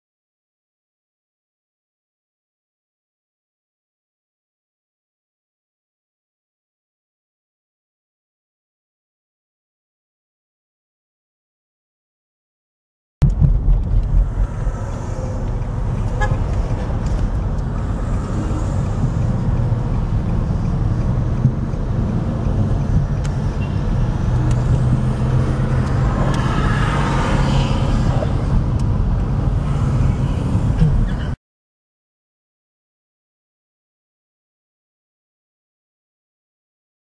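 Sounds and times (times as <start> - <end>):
road traffic: 13.2 - 31.4.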